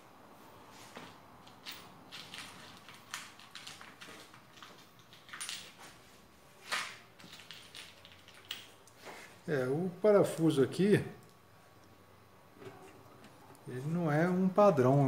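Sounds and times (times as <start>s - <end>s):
small metal parts clicking: 1.4s - 5.9s, 6.9s - 9.0s.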